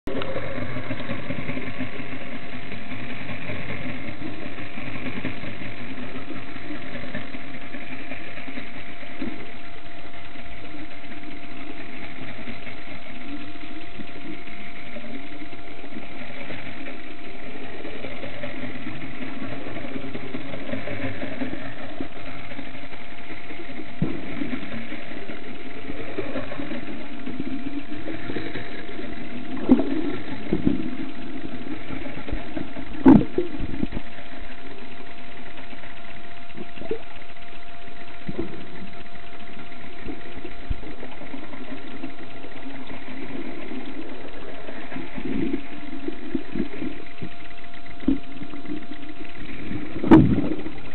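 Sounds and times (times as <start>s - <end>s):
underwater boat engine hum: 0.0s - 50.9s.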